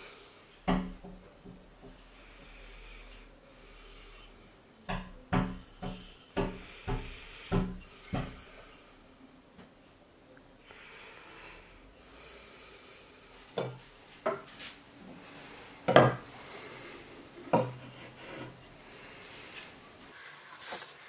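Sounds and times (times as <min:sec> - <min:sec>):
hatchet knocking on workbench: 0:04.9 - 0:08.4.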